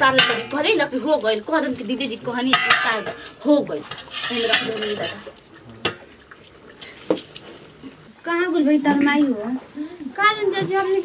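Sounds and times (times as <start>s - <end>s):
ladle clinking against pot: 0.0s - 0.8s, 2.4s - 6.1s
woman speaking: 0.0s - 5.3s, 8.2s - 11.0s
steel cookware clattering: 0.0s - 6.1s.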